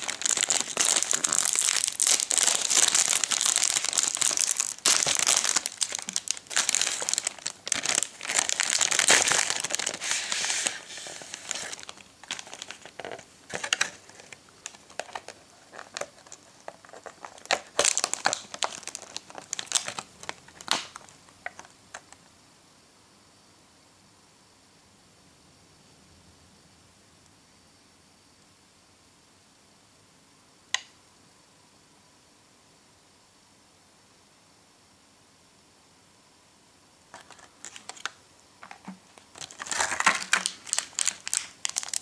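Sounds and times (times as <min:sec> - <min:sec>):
plastic wrapping crinkling: 0:00.0 - 0:22.2, 0:37.1 - 0:42.0.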